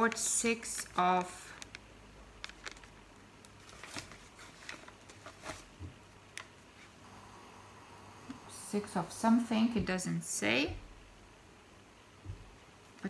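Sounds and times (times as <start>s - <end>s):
paper receipt rustling: 0.0s - 5.7s.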